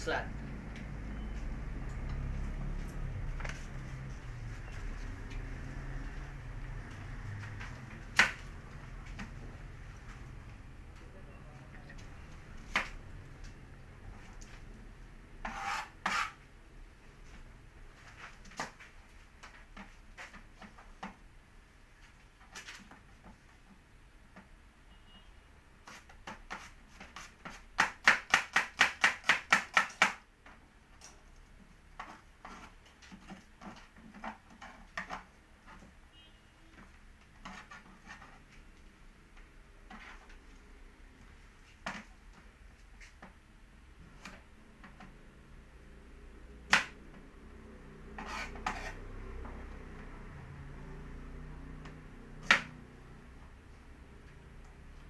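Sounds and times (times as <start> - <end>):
knife chopping on plastic board: 26.0 - 30.2.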